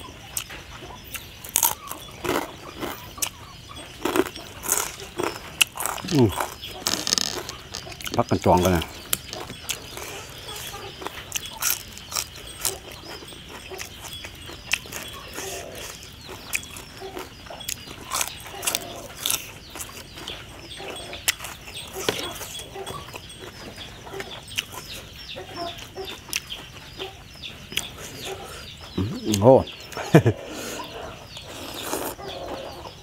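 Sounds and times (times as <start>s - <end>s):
chickens clucking and peeping: 0.0s - 33.0s
green beans crunching: 1.1s - 23.5s, 31.4s - 32.6s.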